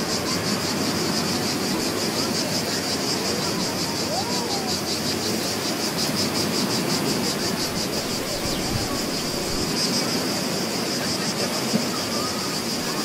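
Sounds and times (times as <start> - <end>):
insects chirping: 0.0 - 13.0
surf: 0.0 - 13.0.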